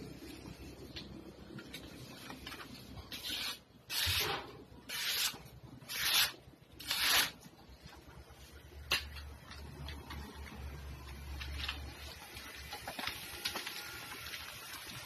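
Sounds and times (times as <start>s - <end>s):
knife blade slicing paper: 3.1s - 7.4s.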